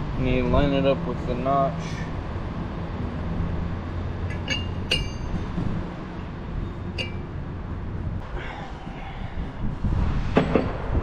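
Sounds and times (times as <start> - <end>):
metal ring clinking on metal: 4.2 - 5.5, 6.2 - 7.4.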